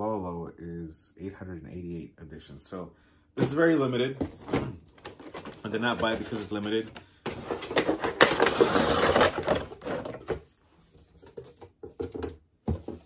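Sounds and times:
packaging clicks and knocks: 0:04.5 - 0:10.4
cardboard box sliding: 0:07.3 - 0:09.6.

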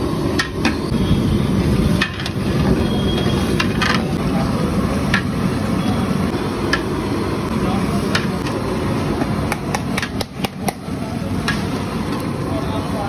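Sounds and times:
ladle knocking and scraping metal pot: 0:03.2 - 0:04.1.

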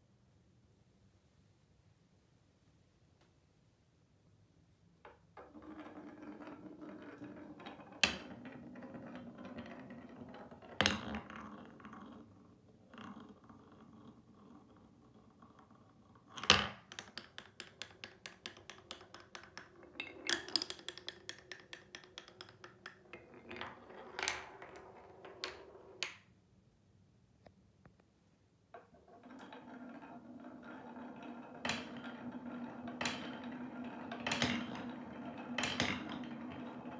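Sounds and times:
marble rolling on wooden track: 0:05.0 - 0:26.3, 0:28.7 - 0:36.9
marble clicking in spiral funnel: 0:05.4 - 0:26.2, 0:28.8 - 0:36.9
marble knocking onto wood: 0:16.4 - 0:24.5.

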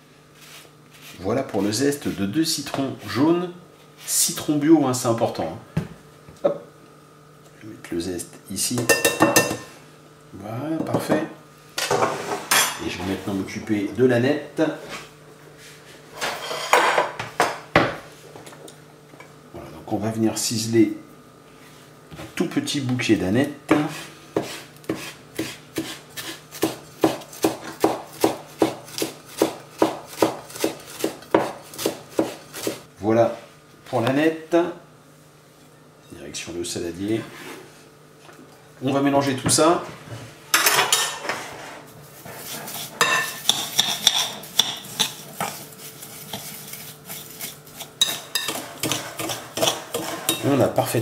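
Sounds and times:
knife chopping on plastic board: 0:23.7 - 0:32.8
spoon scraping salt and sugar: 0:23.8 - 0:26.7, 0:42.2 - 0:50.6.

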